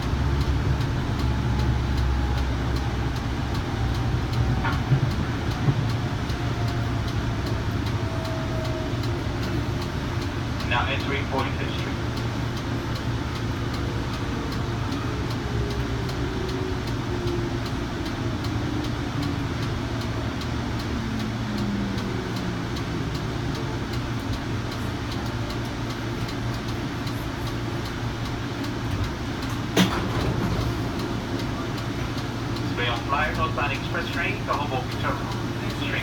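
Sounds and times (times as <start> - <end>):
train running gear rumble: 0.0 - 36.0.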